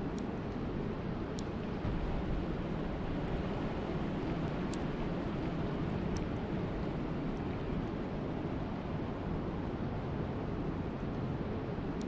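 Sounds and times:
faint ticks: 0:01.3 - 0:01.6, 0:04.4 - 0:04.9.

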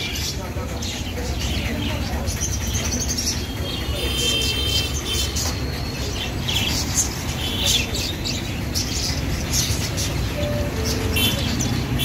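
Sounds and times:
budgerigars chirping and chattering: 0:00.0 - 0:12.0.

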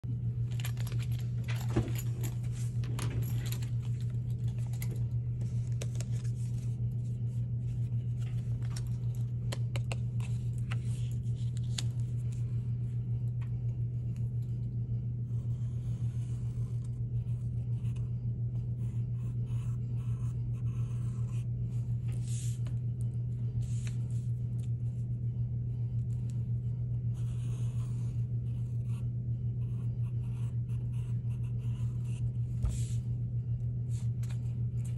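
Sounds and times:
low hum: 0:00.0 - 0:34.9
pencil scratching on paper: 0:15.2 - 0:21.6, 0:27.1 - 0:33.0.

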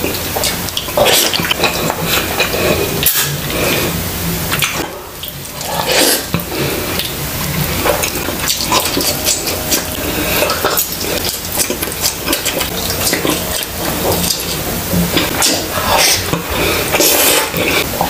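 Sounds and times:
wet chewing and lip smacking: 0:04.5 - 0:18.0.

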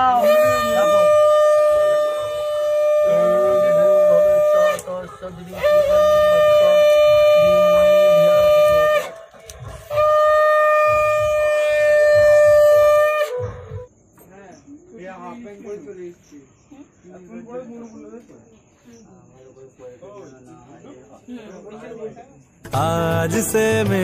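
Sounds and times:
conch shell blasts: 0:00.0 - 0:14.0.

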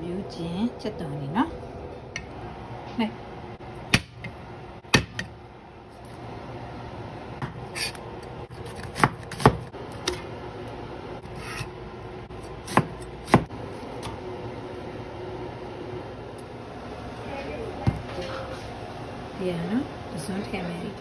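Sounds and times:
knife slicing vegetables: 0:07.4 - 0:10.2.

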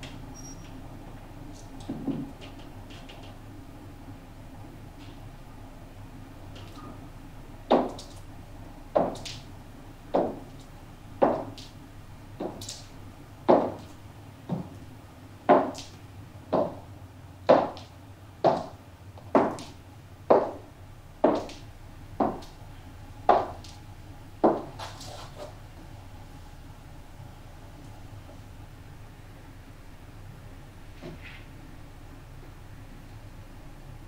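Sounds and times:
footsteps on hard floor: 0:10.2 - 0:10.5, 0:11.2 - 0:11.6, 0:12.4 - 0:12.6, 0:13.5 - 0:14.8, 0:15.5 - 0:15.8, 0:16.5 - 0:16.8, 0:17.5 - 0:19.7, 0:20.3 - 0:20.6, 0:22.2 - 0:22.4.

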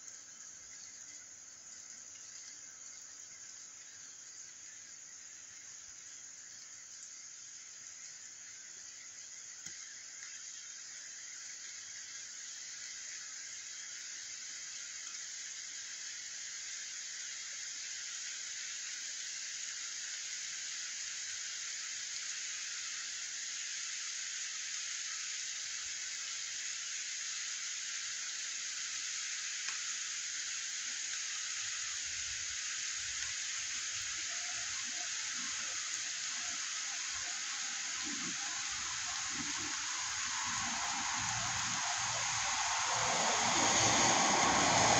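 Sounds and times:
rain falling on street: 0:33.0 - 0:44.9.

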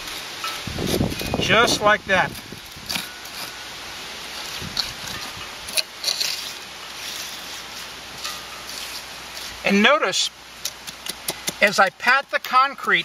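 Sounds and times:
steady background hiss: 0:00.0 - 0:13.0
wooden block tapping wet concrete: 0:10.6 - 0:12.6.

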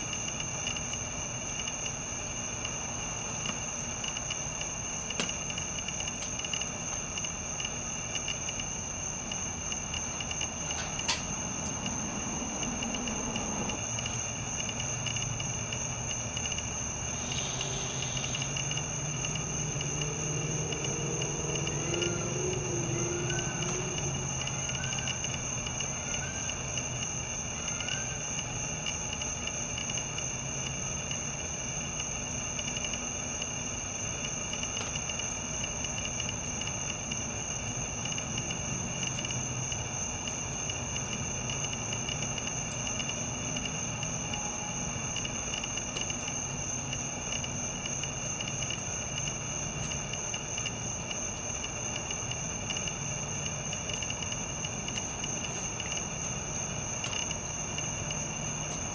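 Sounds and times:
lower steady tone: 0:00.0 - 0:29.4
crickets trilling: 0:00.0 - 0:58.9.

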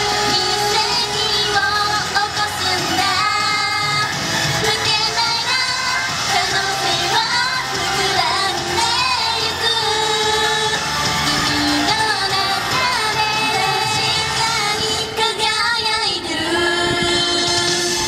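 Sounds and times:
pop backing music: 0:00.0 - 0:18.0
women singing pop song: 0:00.0 - 0:18.0.

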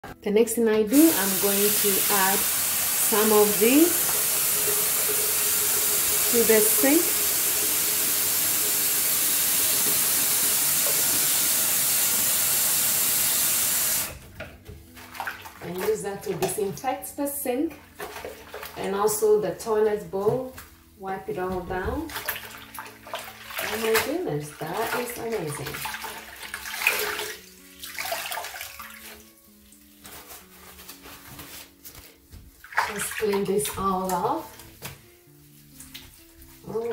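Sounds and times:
soft background music: 0:00.0 - 0:36.9
faucet running into sink: 0:00.9 - 0:14.2, 0:22.0 - 0:29.2
water dripping from wrung sponge: 0:22.0 - 0:29.9, 0:32.3 - 0:34.9.

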